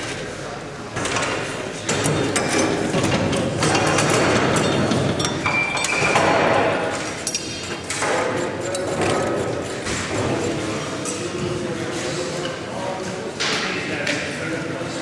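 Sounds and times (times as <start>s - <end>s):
metal clinking and knocking: 1.9s - 6.4s.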